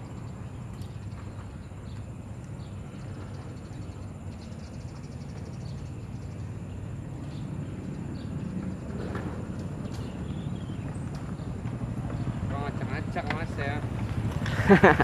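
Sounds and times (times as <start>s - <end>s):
insect drone: 0.0s - 15.0s
bird chirps: 9.7s - 12.5s.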